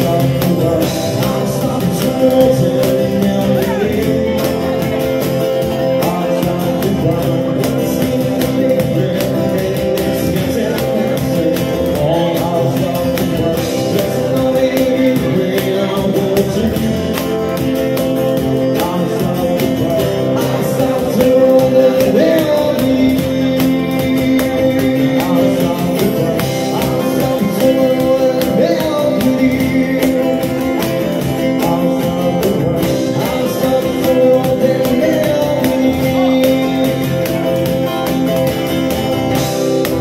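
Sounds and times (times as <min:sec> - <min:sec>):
acoustic guitars strumming: 0:00.0 - 0:40.0
men singing: 0:00.0 - 0:40.0.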